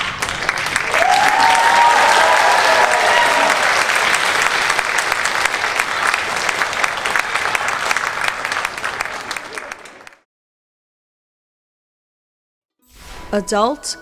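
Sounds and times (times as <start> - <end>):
audience applauding: 0.0 - 10.2
audience cheering: 0.0 - 10.2.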